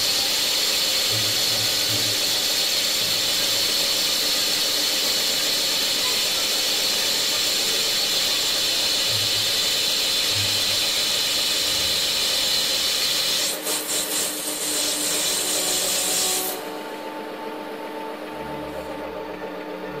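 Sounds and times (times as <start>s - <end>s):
lathe tool cutting metal: 0.0s - 20.0s
lathe motor hum: 14.3s - 20.0s.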